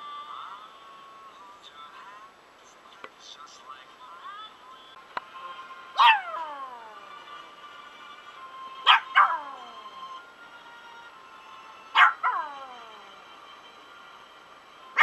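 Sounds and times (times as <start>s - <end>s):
worship song from phone: 0.0s - 2.3s, 4.9s - 15.0s
dog barking high-pitched: 6.0s - 6.8s, 8.8s - 9.7s, 12.0s - 12.8s.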